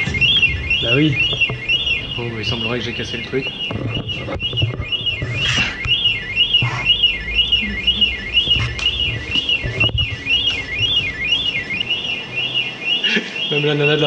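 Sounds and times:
electronic alarm warbling: 0:00.0 - 0:14.0.

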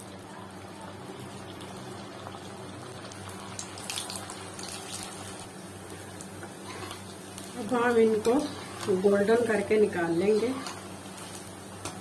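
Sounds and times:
deep-frying sizzle: 0:00.0 - 0:12.0
oil crackling and spattering: 0:03.0 - 0:05.5.

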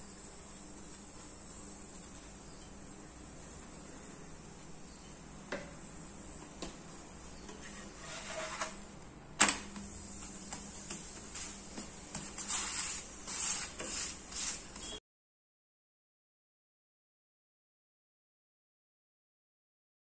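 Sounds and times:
spatula scraping pan: 0:07.4 - 0:08.9, 0:10.5 - 0:15.0.

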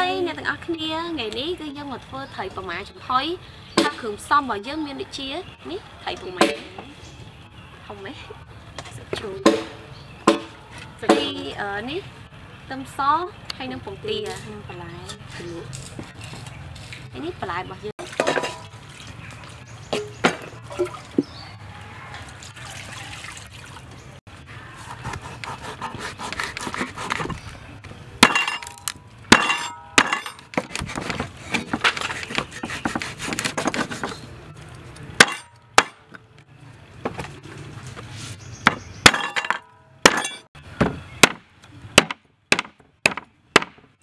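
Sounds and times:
cleaver chopping on wooden board: 0:09.4 - 0:10.5, 0:42.0 - 0:43.8
cleaver scraping fish scales: 0:24.7 - 0:27.5, 0:30.6 - 0:34.3.

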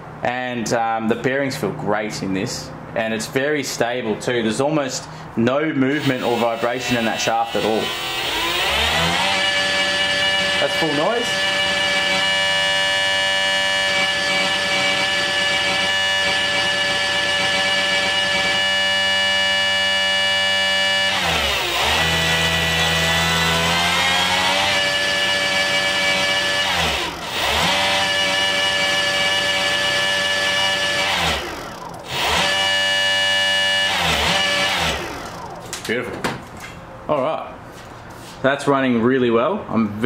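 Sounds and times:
electric motor whining: 0:05.9 - 0:35.8.

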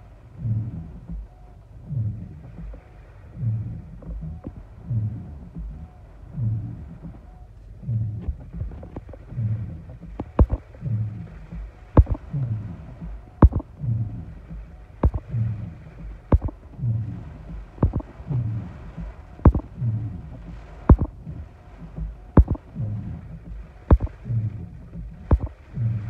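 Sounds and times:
windshield wiper click: 0:09.9 - 0:10.7, 0:14.5 - 0:15.4, 0:17.5 - 0:18.4
windshield wipers thumping: 0:09.9 - 0:10.7, 0:11.5 - 0:12.4, 0:13.0 - 0:13.7, 0:14.5 - 0:15.3, 0:16.0 - 0:16.6, 0:17.5 - 0:21.2, 0:21.8 - 0:22.7, 0:24.8 - 0:25.6.

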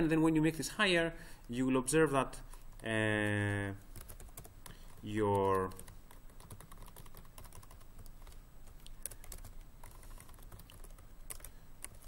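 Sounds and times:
computer keyboard typing: 0:02.5 - 0:12.0.

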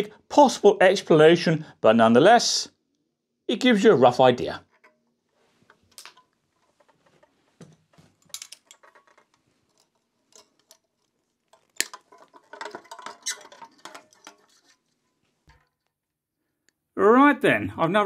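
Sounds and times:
rattling: 0:04.7 - 0:15.9.

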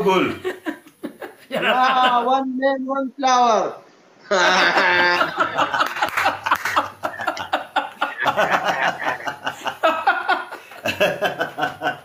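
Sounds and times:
men laughing hard: 0:00.4 - 0:02.3, 0:04.3 - 0:12.0.

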